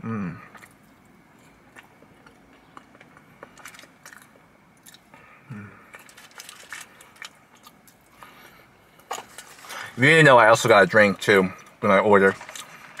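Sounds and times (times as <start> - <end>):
chewing fries: 0.4 - 10.0, 10.6 - 13.0.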